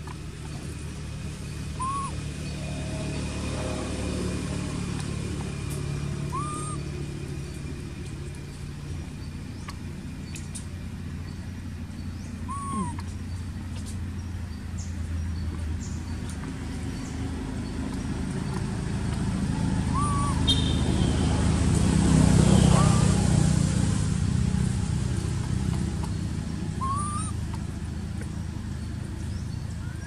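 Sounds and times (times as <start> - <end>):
distant road traffic rumble: 0.0 - 30.0
rising and falling call: 1.7 - 5.2, 6.0 - 7.1, 12.5 - 13.1, 19.3 - 23.6, 26.7 - 27.4.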